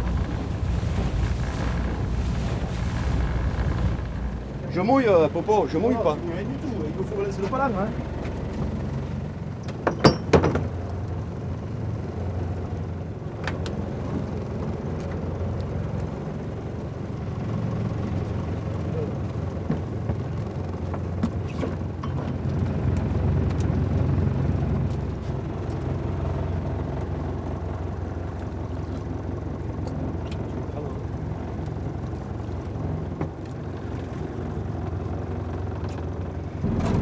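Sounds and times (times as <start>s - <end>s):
boat engine running: 0.0s - 37.0s.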